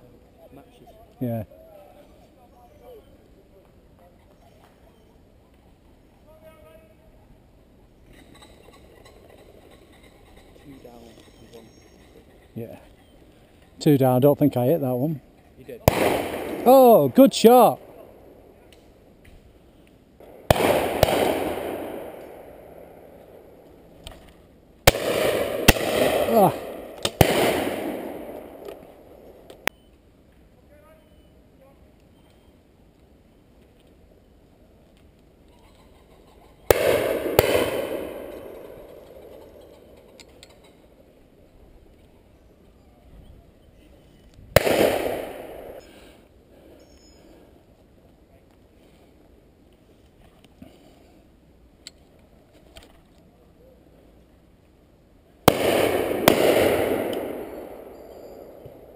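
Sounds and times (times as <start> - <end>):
shotgun shots echoing: 15.8 - 18.0, 20.2 - 23.6, 24.9 - 29.4, 36.7 - 39.5, 44.6 - 45.8, 55.5 - 58.9.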